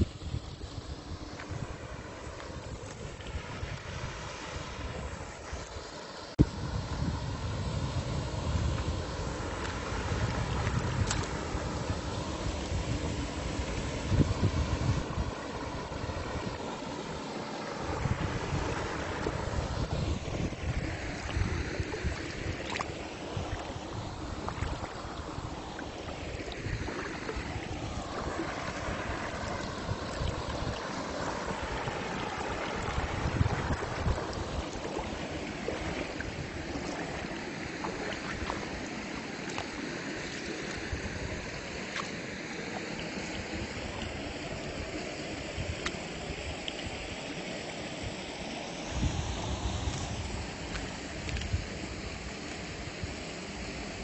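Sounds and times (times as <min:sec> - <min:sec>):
wind buffeting microphone: 0:00.0 - 0:05.8, 0:06.4 - 0:39.6
river flowing: 0:00.0 - 0:54.0.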